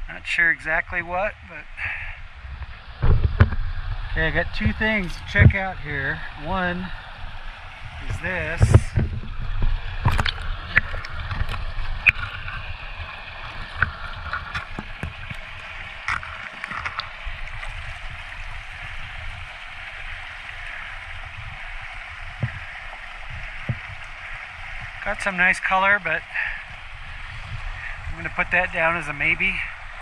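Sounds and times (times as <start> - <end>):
creek water gurgling over cobbles: 0.0 - 30.0
rock clicks and knocks: 8.6 - 12.7, 13.7 - 17.1.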